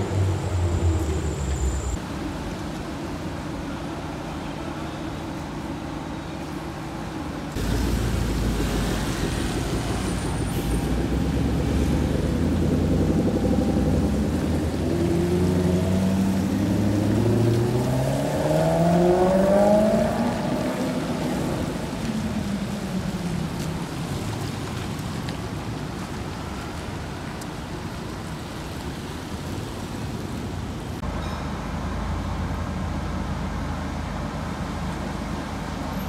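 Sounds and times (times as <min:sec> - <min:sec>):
car engine accelerating: 0:00.0 - 0:02.0, 0:07.6 - 0:24.3
low traffic rumble: 0:00.0 - 0:36.0.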